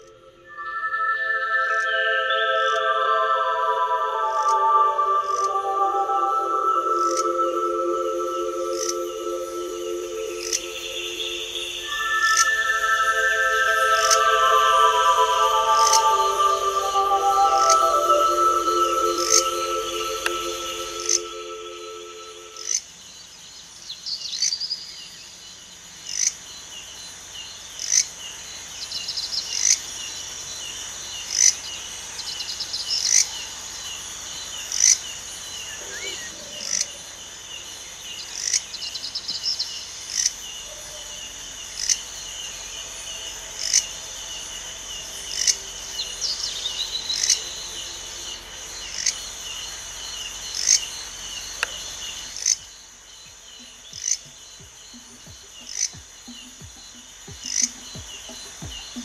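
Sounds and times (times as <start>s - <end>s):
crickets chirring: 0.0s - 59.0s
short sharp insect chirp: 7.0s - 16.9s, 26.1s - 59.0s
fast insect trilling: 8.7s - 21.6s, 55.6s - 59.0s.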